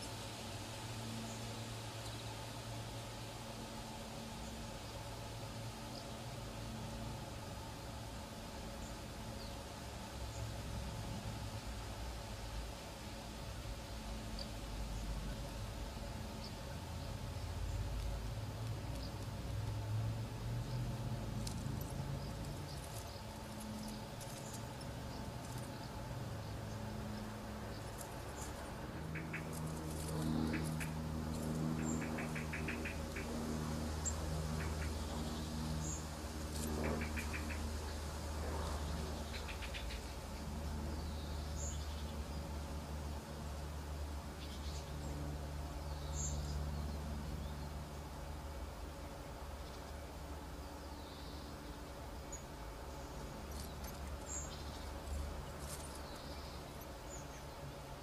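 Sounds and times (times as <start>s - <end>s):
low hum: 0.0s - 58.0s
faint high chirps and ticks: 16.4s - 19.9s.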